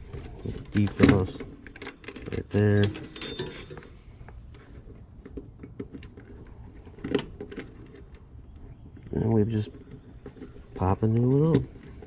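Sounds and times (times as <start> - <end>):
wires clicking and rustling: 0.2 - 8.3.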